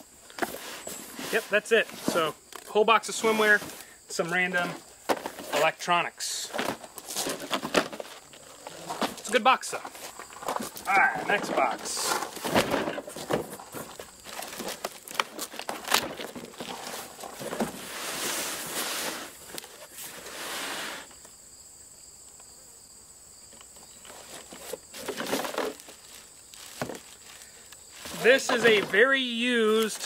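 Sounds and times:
faint high insect drone: 0.0 - 30.0
plastic crinkling: 10.0 - 17.8, 24.2 - 30.0
cardboard box knocks and scrapes: 15.6 - 19.3.

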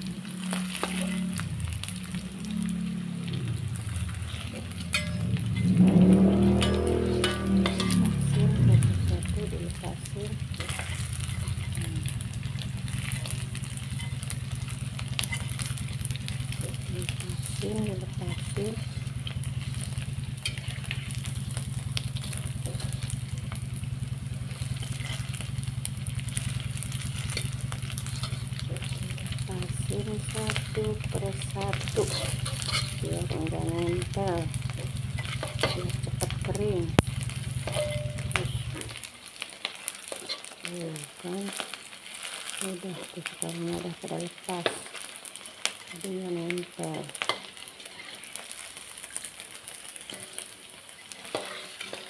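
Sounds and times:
steady low hum: 0.0 - 39.1
food sizzling in hot oil: 0.0 - 52.0
spatula clinking against wok: 4.8 - 5.7, 6.5 - 8.4, 37.6 - 38.4
metal spatula clicking on pan: 6.5 - 8.1, 31.7 - 33.0, 37.0 - 38.4, 51.2 - 52.0.

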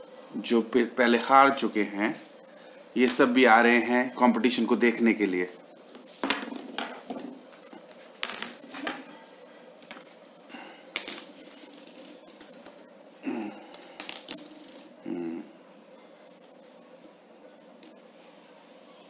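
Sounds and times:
metal spinners clinking on tile: 8.2 - 9.1, 11.0 - 12.9, 13.8 - 15.0.

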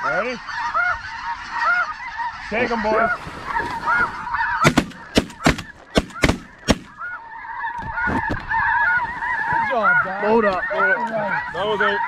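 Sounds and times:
geese honking: 0.0 - 12.0
shotgun shots: 4.6 - 7.0.

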